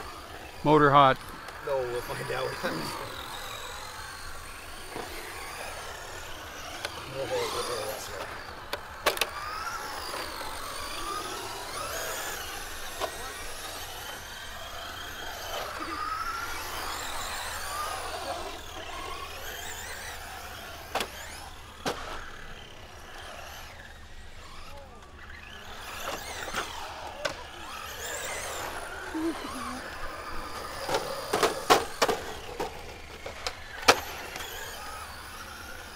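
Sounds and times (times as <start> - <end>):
electric toy car motor whining: 0.0 - 35.9.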